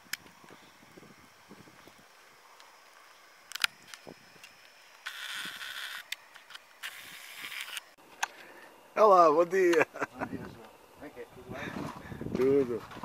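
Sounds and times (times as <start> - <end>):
camera handling rustling: 2.7 - 8.4
camera click: 3.5 - 7.9.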